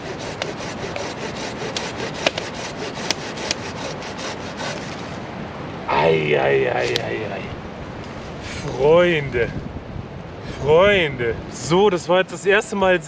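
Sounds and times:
pull saw cutting log: 0.0 - 5.2.

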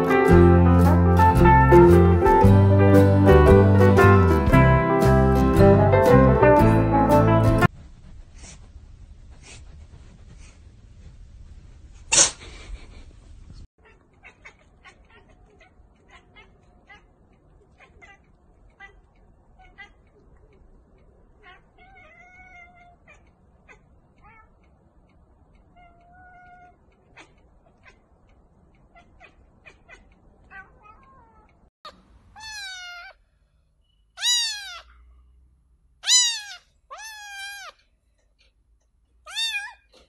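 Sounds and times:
cats meowing: 13.8 - 31.7, 32.4 - 33.2, 34.2 - 35.0, 36.0 - 37.8, 39.3 - 40.0.

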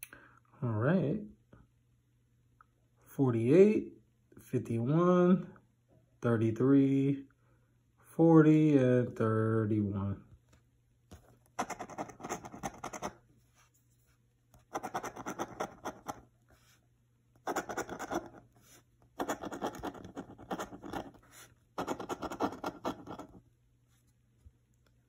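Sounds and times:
coin scratching lottery ticket: 11.6 - 13.2, 14.6 - 16.2, 17.4 - 18.5, 19.2 - 23.4.

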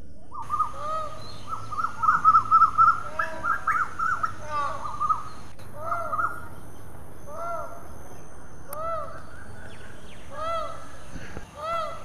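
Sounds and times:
peafowl calling: 0.3 - 12.0.

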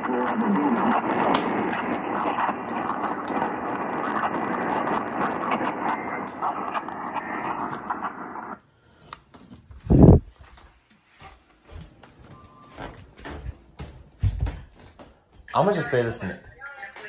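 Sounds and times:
radio static hiss and crackles: 0.0 - 8.6, 15.5 - 17.0.

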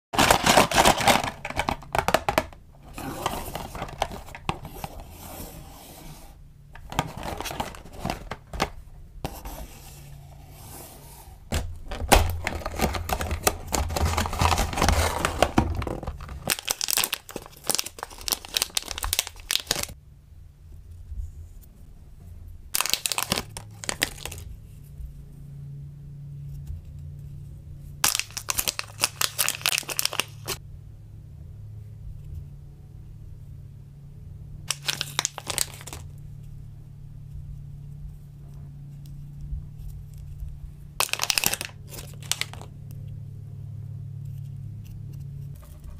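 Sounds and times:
plastic wrapper crinkling and tearing: 0.2 - 4.7, 6.8 - 8.8, 11.9 - 20.0, 22.8 - 24.5, 28.0 - 30.6, 34.7 - 36.1, 41.0 - 42.7
cardboard box being opened: 0.2 - 17.8.

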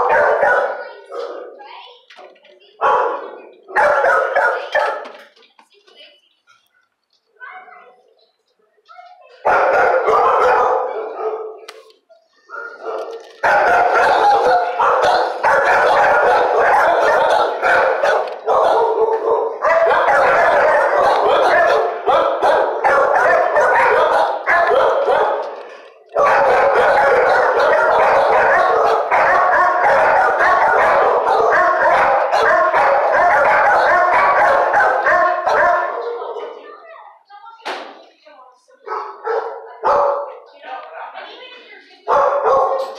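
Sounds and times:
many dogs barking: 0.0 - 1.6, 2.8 - 5.1, 9.3 - 11.7, 12.4 - 36.8, 38.8 - 40.5, 42.0 - 42.9.

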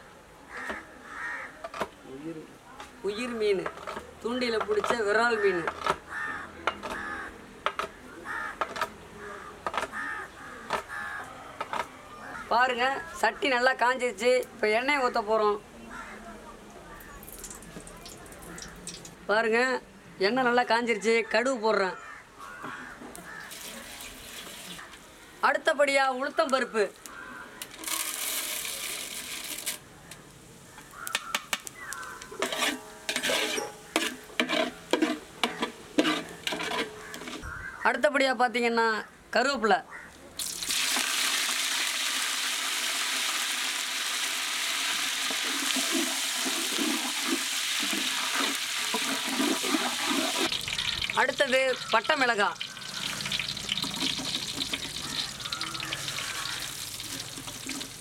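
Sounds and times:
crows cawing: 0.5 - 1.9, 5.3 - 13.6, 15.8 - 17.2, 18.3 - 18.9, 21.2 - 23.8, 26.3 - 27.8, 30.0 - 32.4, 35.4 - 38.0, 39.9 - 40.2, 47.8 - 57.7
lentils hissing in hot oil: 27.8 - 29.8, 40.4 - 58.0
ladle scraping metal pot: 32.2 - 37.5, 45.3 - 51.2, 52.6 - 58.0.

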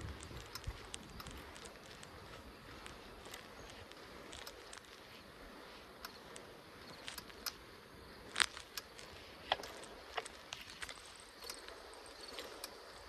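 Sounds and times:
bicycle tyres hissing on road: 0.0 - 13.0
bike clicks and rattles: 0.0 - 13.0.

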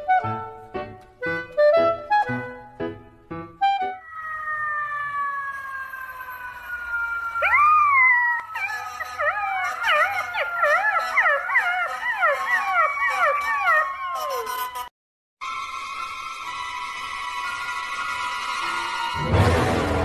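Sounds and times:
steady falling tone: 4.0 - 8.6
puppy howling: 4.0 - 14.9.

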